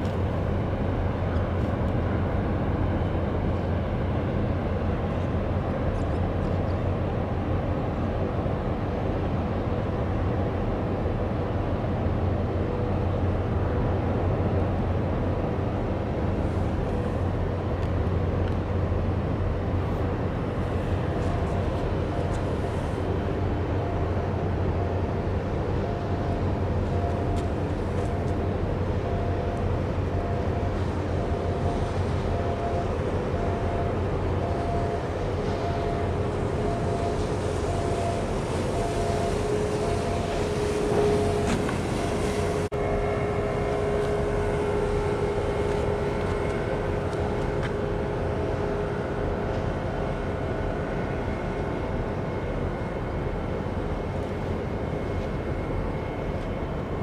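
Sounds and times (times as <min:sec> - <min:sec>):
ship machinery rumbling: 0:00.0 - 0:57.0.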